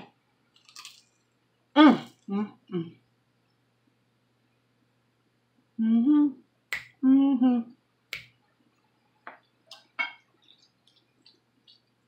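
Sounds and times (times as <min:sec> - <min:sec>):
closed-mouth hum while chewing: 0:05.6 - 0:12.0
finger snaps: 0:06.7 - 0:07.0, 0:08.1 - 0:08.4.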